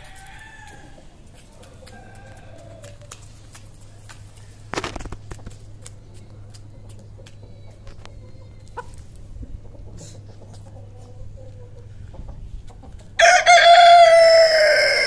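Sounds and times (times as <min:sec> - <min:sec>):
rooster crowing: 0:00.0 - 0:01.1, 0:01.8 - 0:03.0, 0:13.2 - 0:15.0
chickens pecking and moving: 0:00.0 - 0:13.9
steady low hum: 0:00.0 - 0:14.1.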